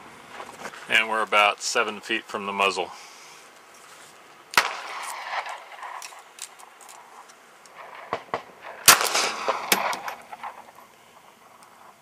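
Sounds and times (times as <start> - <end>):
handgun shot: 4.6 - 6.2, 7.9 - 10.6.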